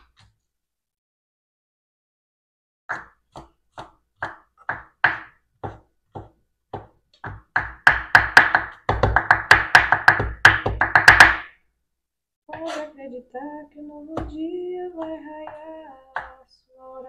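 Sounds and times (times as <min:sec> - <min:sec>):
knife chopping on wooden board: 0:02.9 - 0:11.6.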